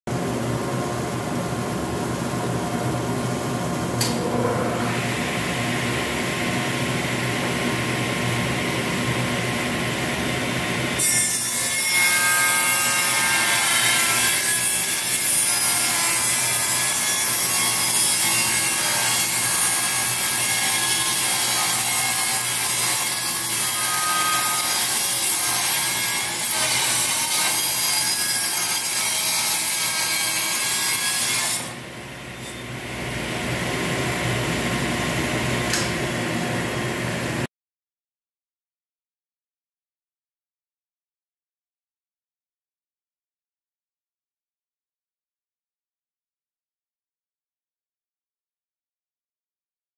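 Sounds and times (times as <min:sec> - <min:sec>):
table saw ripping a board: 0:11.0 - 0:31.8.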